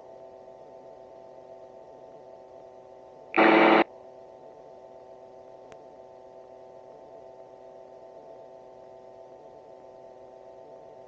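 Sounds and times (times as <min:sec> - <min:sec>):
radio static burst: 0:03.4 - 0:03.8.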